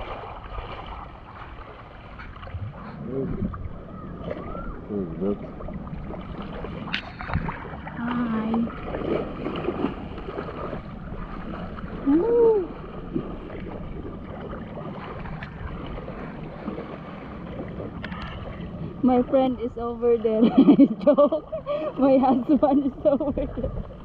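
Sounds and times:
seawater sloshing around wader: 0.0 - 24.0
person saying ooh: 12.1 - 12.8.

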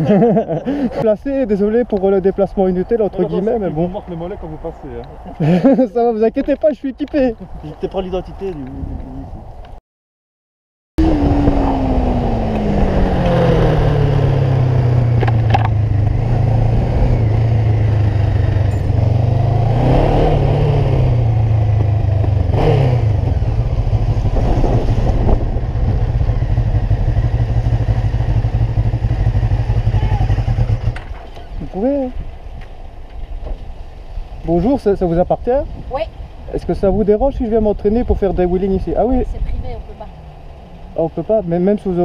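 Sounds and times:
motorcycle engine running: 11.0 - 19.6, 20.2 - 32.1.

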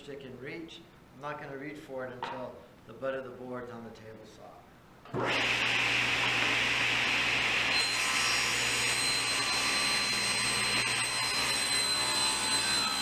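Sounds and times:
table saw motor hum: 5.1 - 13.0.

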